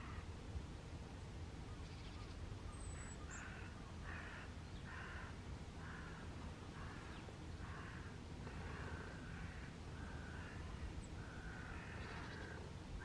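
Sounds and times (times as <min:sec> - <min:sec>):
crow cawing: 0:03.3 - 0:12.7.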